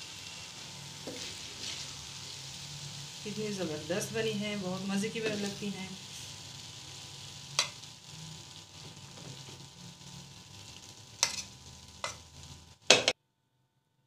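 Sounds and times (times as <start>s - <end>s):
faint sizzle: 0.0s - 13.2s
metal spoon scraping a pan: 1.0s - 2.0s, 7.6s - 7.8s, 11.2s - 12.3s.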